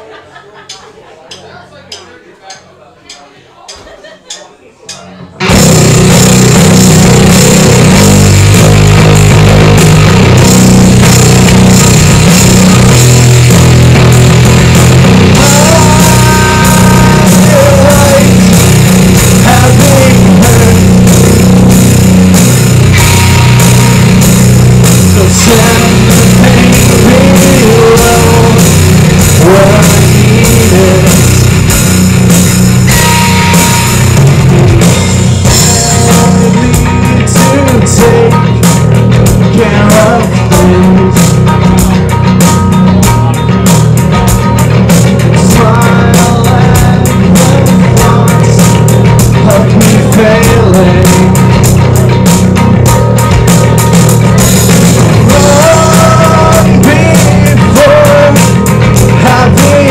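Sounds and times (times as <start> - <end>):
drum kit: 0.0 - 59.9
bass guitar: 3.7 - 59.9
distorted electric guitar: 4.9 - 59.9
person singing into microphone: 15.2 - 22.1, 25.0 - 31.6, 35.5 - 42.0, 45.0 - 51.6, 55.1 - 59.9.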